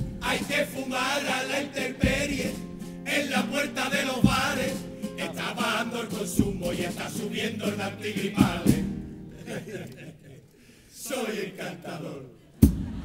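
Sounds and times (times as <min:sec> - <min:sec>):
low drum thumps: 0:00.0 - 0:00.5, 0:02.0 - 0:02.8, 0:04.2 - 0:05.0, 0:06.4 - 0:07.0, 0:08.4 - 0:09.1
guitars: 0:00.0 - 0:10.1
male chorus singing in unison: 0:00.0 - 0:12.6.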